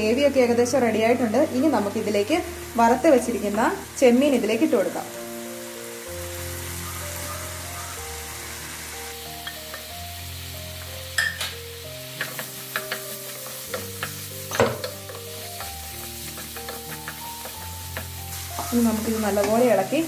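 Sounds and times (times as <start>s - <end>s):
prawns sizzling in frying pan: 0.0s - 20.0s
spatula knocking and scraping pan: 12.1s - 19.6s.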